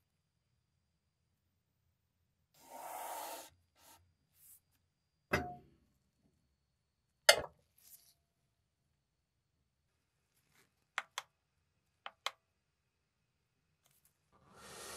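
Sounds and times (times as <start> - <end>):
cast iron pan knocking on scale: 5.3 - 5.6.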